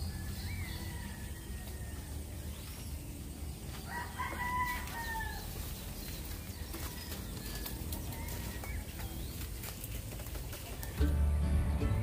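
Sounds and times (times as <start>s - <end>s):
rooster crowing: 0.0s - 2.4s, 3.8s - 5.6s.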